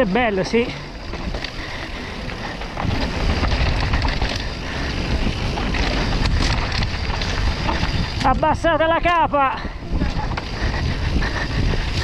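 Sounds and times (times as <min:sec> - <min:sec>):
bike rattling: 0:00.0 - 0:12.0
wind buffeting microphone: 0:00.0 - 0:12.0
tyres crunching over rocks: 0:00.4 - 0:08.5.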